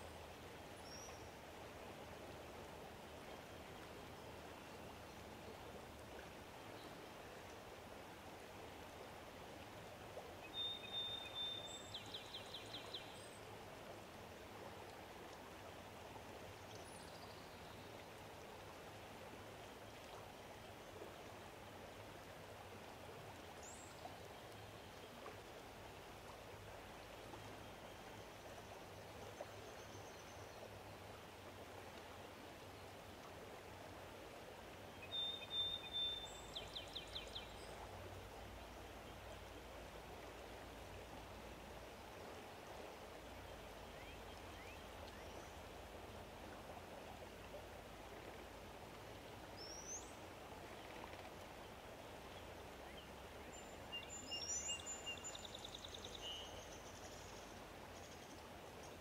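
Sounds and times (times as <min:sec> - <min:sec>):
outdoor ambience hiss: 0:00.0 - 0:59.0.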